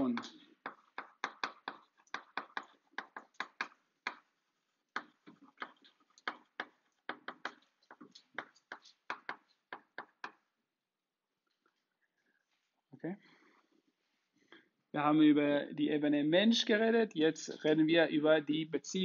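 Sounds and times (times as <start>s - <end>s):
chalk tapping and scratching: 0.0s - 4.3s, 4.9s - 10.5s.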